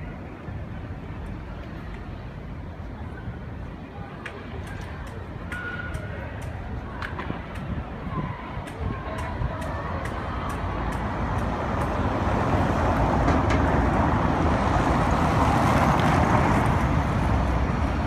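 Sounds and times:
tram wheels rumbling on rails: 4.0s - 18.0s.

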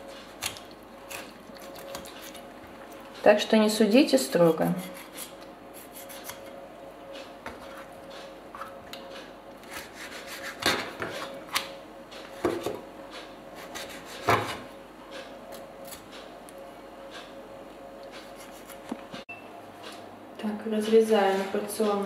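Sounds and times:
knife scraping cutting board: 4.6s - 6.6s, 9.6s - 11.3s, 13.6s - 14.6s, 18.2s - 18.9s.

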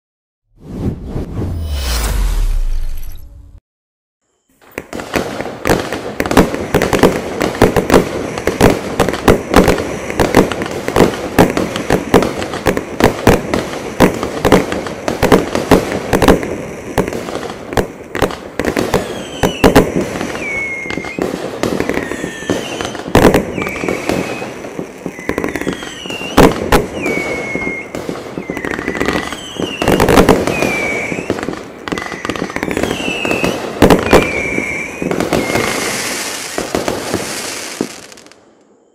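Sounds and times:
falling firework whistles: 0.6s - 3.6s, 18.2s - 38.9s
hissing crackle of fireworks: 4.5s - 38.9s
fireworks shots and bangs: 4.6s - 38.4s.

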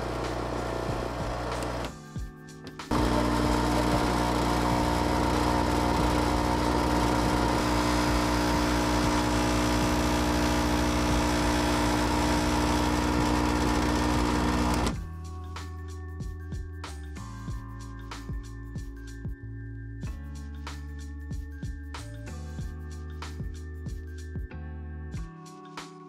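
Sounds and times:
espresso machine pump buzzing: 0.0s - 2.0s, 2.9s - 15.0s.

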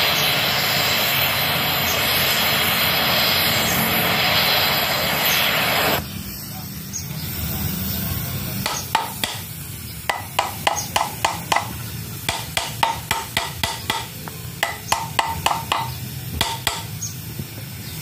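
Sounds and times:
hammer striking metal: 8.6s - 9.5s, 10.1s - 17.0s.

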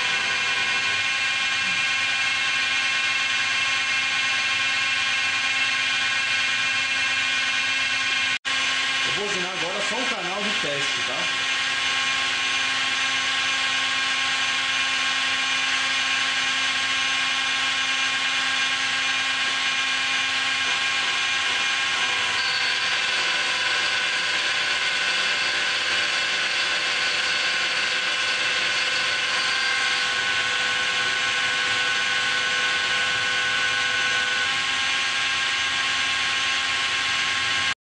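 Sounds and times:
die grinder whining at high speed: 0.0s - 37.8s.

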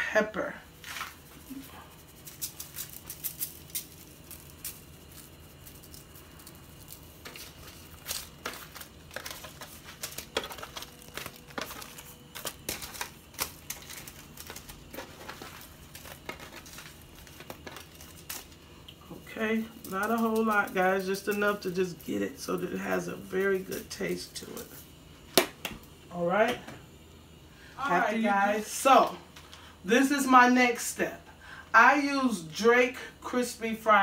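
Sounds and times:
aluminium foil crinkling: 0.7s - 25.9s.

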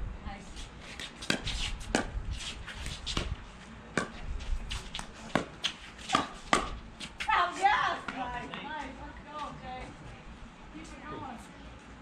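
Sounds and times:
paddles striking pickleball: 5.0s - 7.3s.

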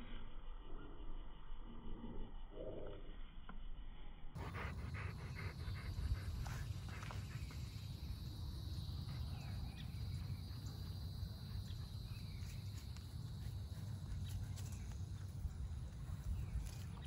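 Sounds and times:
low steady rumble: 0.0s - 17.0s
insects trilling: 4.4s - 17.0s.

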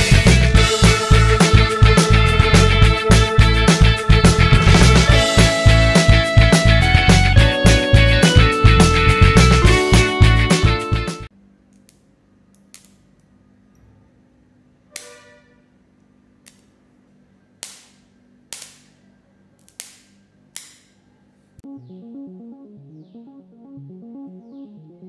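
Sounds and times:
music with keyboard pattern: 0.0s - 11.3s, 21.6s - 25.0s
spot welder electric snaps: 11.7s - 13.2s, 14.9s - 15.2s, 16.4s - 16.8s, 17.6s - 19.0s, 19.6s - 21.0s.

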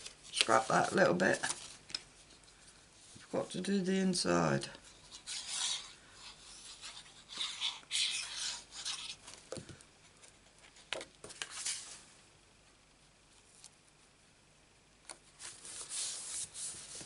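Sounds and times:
card sheets rustling: 0.0s - 2.4s, 10.7s - 12.1s.

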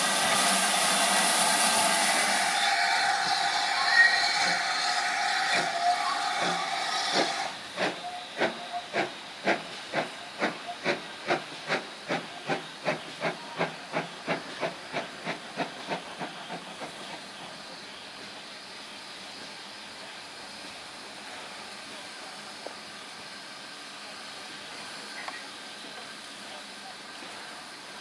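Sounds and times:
steam whistle tone: 0.0s - 8.9s
locomotive exhaust chuffs: 0.0s - 18.3s
hissing steam: 0.0s - 28.0s.

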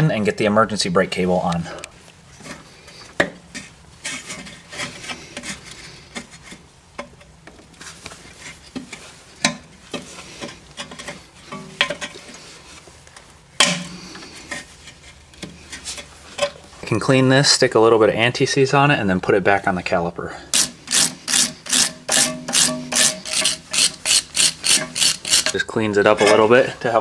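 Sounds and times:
metal parts clicking and scraping: 20.5s - 25.6s.

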